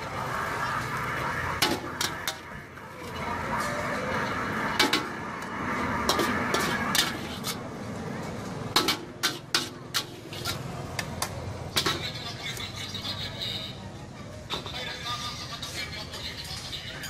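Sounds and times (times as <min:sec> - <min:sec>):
utensils scraping a steel wok: 0:05.8 - 0:07.7, 0:08.8 - 0:10.8.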